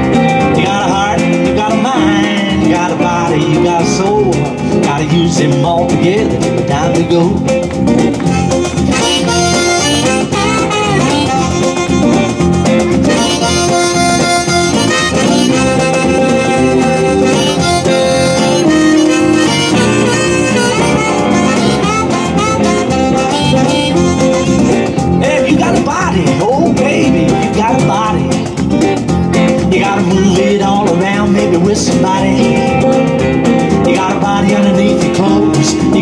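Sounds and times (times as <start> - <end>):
strummed acoustic guitar: 0.0 - 36.0
harmonica solo: 8.2 - 25.2.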